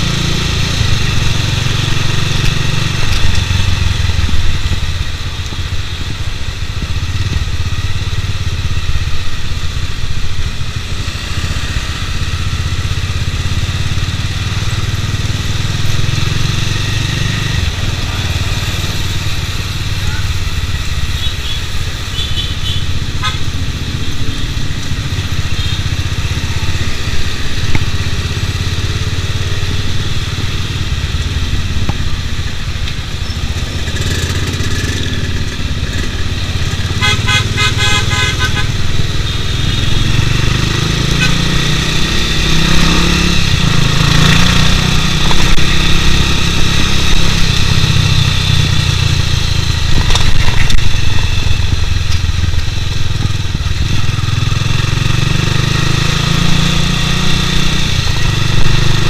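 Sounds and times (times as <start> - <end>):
motorcycle engine running: 0.0 - 59.0
vehicle horn pulses: 21.0 - 24.6, 25.4 - 26.1, 36.8 - 40.0, 41.0 - 41.8.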